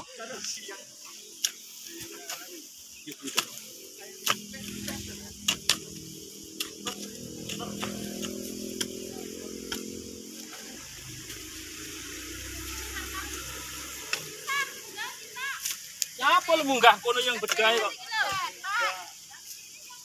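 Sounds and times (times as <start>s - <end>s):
hoe chopping and scraping soil: 3.1s - 11.4s.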